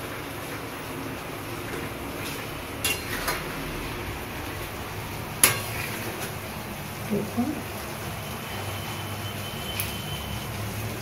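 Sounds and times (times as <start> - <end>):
spatula clinking on pan: 2.8 - 3.4, 5.4 - 5.7.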